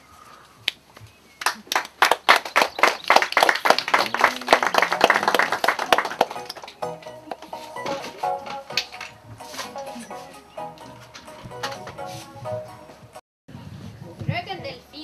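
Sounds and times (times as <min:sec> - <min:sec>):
audience clapping: 0:01.4 - 0:07.5.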